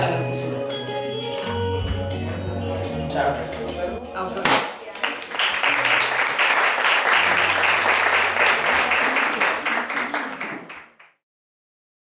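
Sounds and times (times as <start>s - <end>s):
people applauding: 4.8s - 11.2s.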